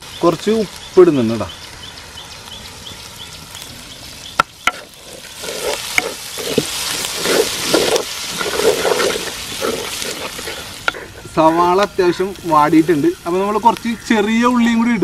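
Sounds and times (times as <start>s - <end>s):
onions sizzling in oil: 0.0s - 15.0s
spatula scraping pan: 4.6s - 14.1s.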